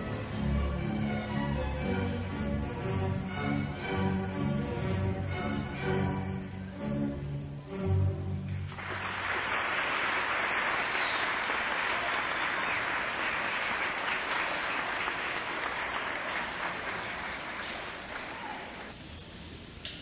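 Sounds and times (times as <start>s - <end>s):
children applauding: 8.7s - 19.0s.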